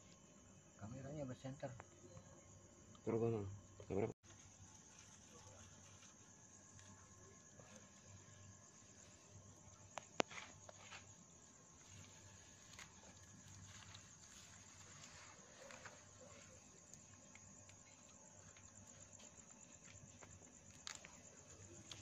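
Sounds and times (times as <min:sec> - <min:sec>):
crickets chirring: 0:00.0 - 0:22.0
hands rustling through grass: 0:04.2 - 0:21.2.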